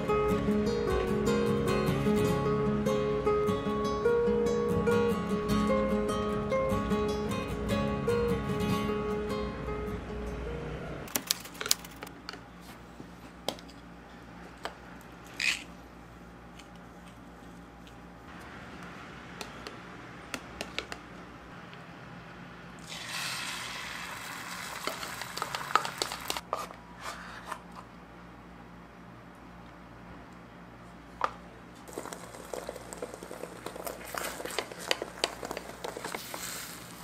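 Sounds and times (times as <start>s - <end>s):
spoon beating eggs in a bowl: 24.8s - 26.4s, 31.9s - 36.5s
hissing of egg in electric pot: 31.9s - 37.0s.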